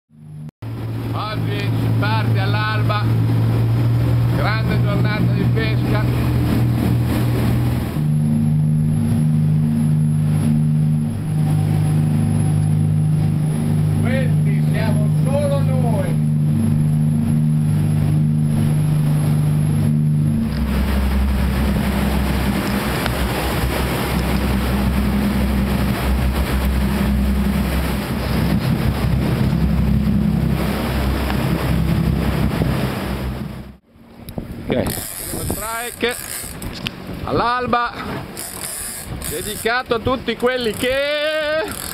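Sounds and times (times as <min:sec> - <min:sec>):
boat engines droning: 0:00.1 - 0:41.9
water noise: 0:00.1 - 0:41.9
wind noise: 0:16.2 - 0:41.8.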